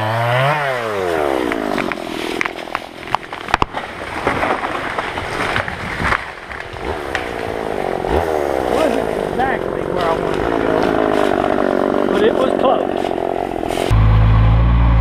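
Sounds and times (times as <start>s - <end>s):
chainsaw revving and idling: 0.0s - 2.8s, 6.1s - 15.0s
tree cracking and falling: 0.1s - 13.9s.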